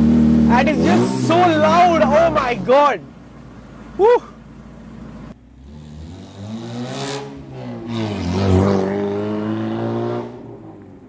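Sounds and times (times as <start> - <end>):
car engine accelerating: 0.0 - 11.0.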